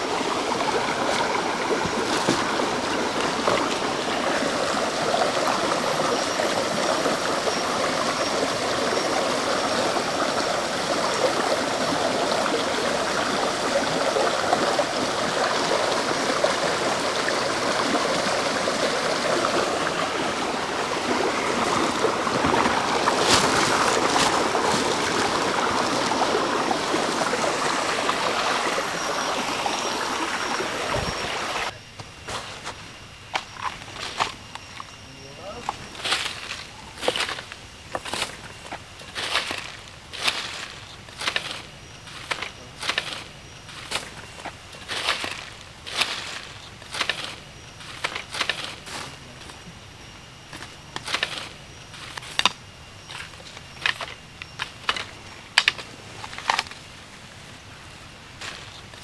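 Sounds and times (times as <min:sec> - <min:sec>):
stream rushing over stones: 0:00.0 - 0:31.7, 0:35.6 - 0:49.6.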